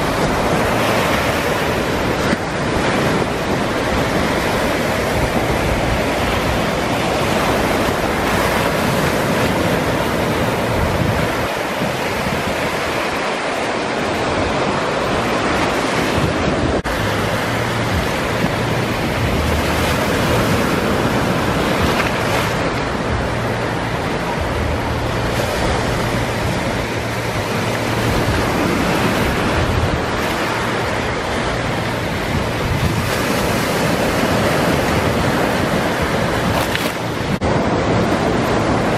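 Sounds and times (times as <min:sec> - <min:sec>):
waves breaking on a beach: 0:00.0 - 0:38.9
wind buffeting the microphone: 0:00.0 - 0:38.9.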